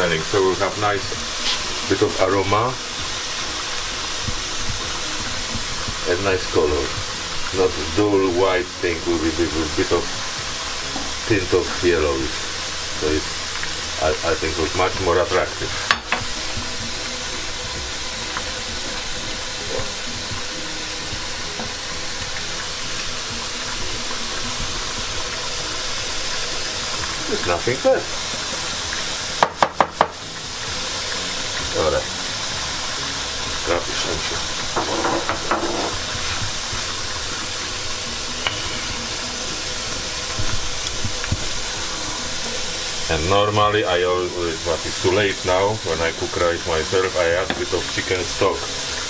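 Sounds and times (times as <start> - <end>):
food sizzling in pans: 0.0 - 49.0
spoon knocking against pan: 15.9 - 16.3, 29.4 - 30.2, 34.7 - 36.1.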